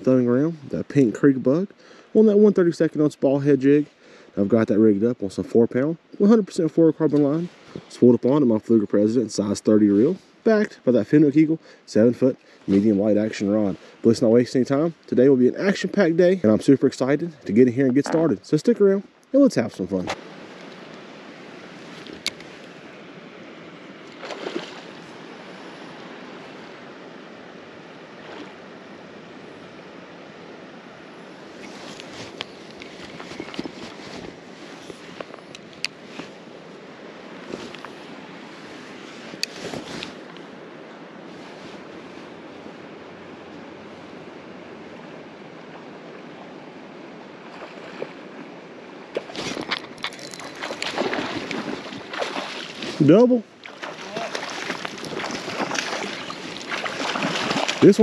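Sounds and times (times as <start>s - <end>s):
creek water rushing: 0.0s - 58.0s
wind: 0.0s - 58.0s
handling rustle: 31.6s - 36.4s, 37.4s - 40.5s, 49.2s - 53.1s
fish splashing at surface: 49.2s - 53.0s, 53.6s - 58.0s.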